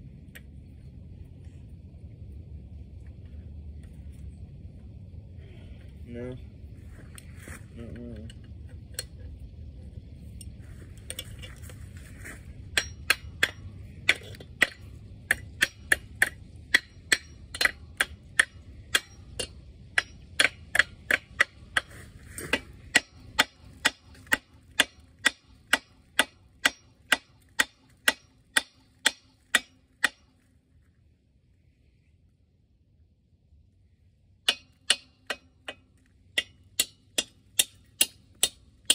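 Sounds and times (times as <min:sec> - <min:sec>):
hammer striking metal: 0:12.7 - 0:21.9, 0:22.5 - 0:30.3, 0:34.4 - 0:38.9.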